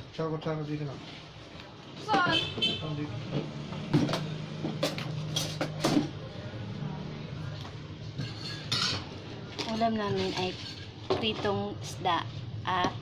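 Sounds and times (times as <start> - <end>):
utensils clinking on plates: 4.0 - 6.1, 8.2 - 11.5.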